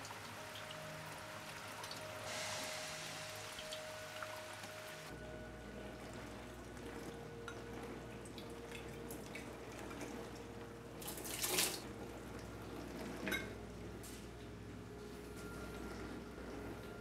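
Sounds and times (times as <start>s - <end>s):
faint watery hiss with drips: 0.0s - 5.1s.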